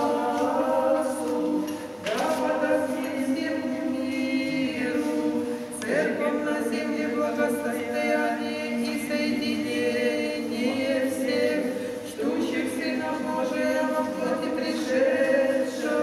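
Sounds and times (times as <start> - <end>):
women singing a hymn: 0.0 - 16.0.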